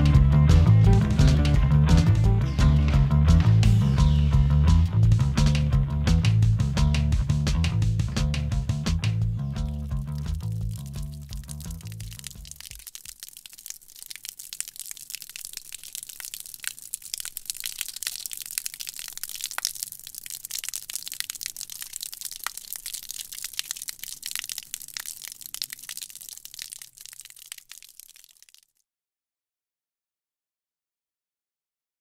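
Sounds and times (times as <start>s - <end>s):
water splashing on wet concrete: 8.9s - 28.8s.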